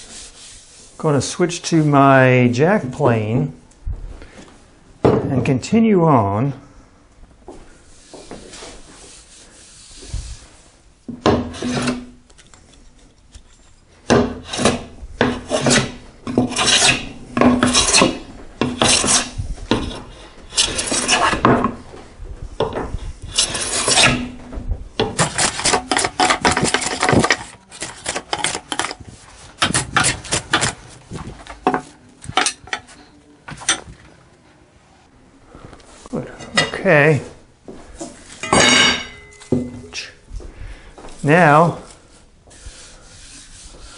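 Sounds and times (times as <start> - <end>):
hand plane rasping on wood: 14.4 - 21.5, 23.3 - 24.3, 25.2 - 28.9.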